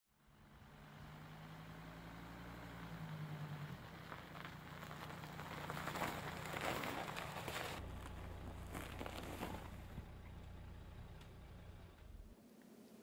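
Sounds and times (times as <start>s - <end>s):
car engine humming: 0.2s - 12.4s
crunch of packed snow: 2.9s - 11.2s.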